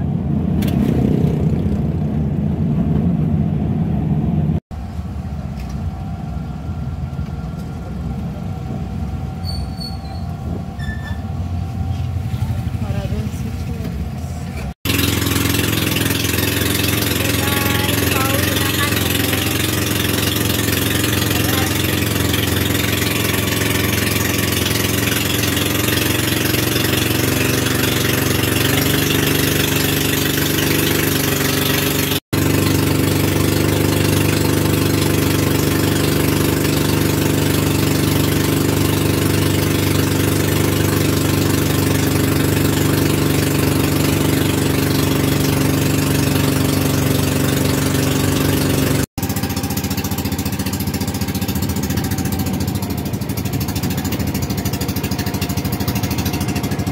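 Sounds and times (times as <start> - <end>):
boat engine droning: 0.0 - 56.9.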